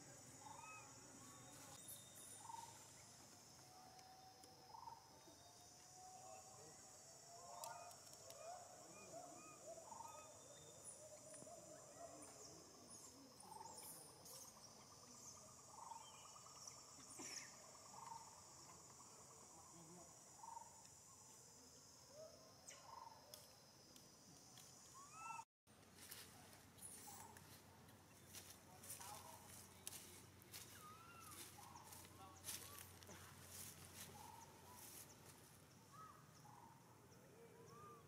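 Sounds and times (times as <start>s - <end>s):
high insect drone: 0.0s - 25.4s.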